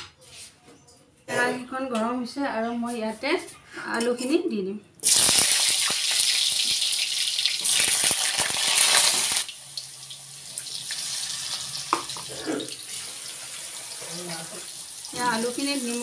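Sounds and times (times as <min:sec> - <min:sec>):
potatoes sizzling in hot oil: 0:05.0 - 0:16.0.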